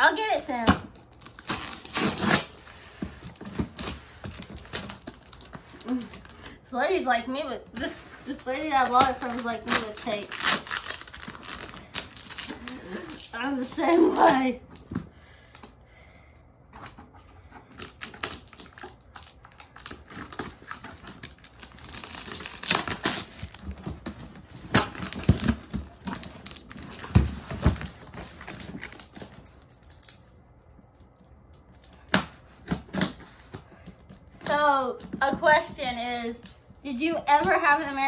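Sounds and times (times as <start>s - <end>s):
packing tape tearing: 0.9s - 6.6s, 7.8s - 14.9s, 17.7s - 30.3s.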